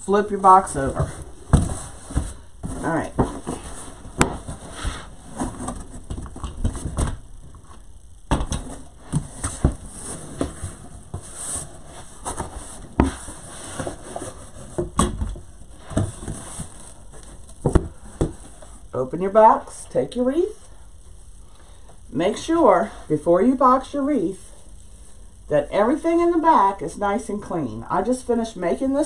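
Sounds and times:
cardboard box rustling: 0.8 - 7.6, 8.6 - 15.0, 15.6 - 18.6.

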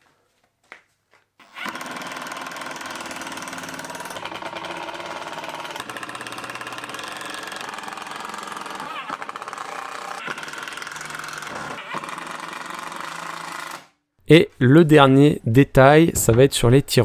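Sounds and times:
impact driver hammering: 1.4 - 13.9.

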